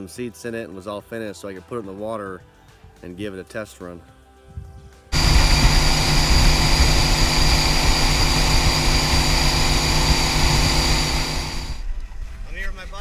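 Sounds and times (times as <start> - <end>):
boat engine running: 5.2 - 11.8
steady rushing noise: 5.2 - 12.0.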